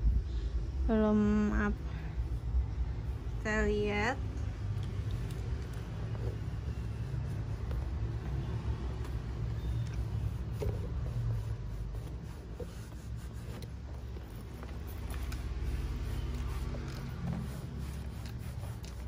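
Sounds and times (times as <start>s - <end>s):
towel rubbing leather bag: 5.5s - 19.0s.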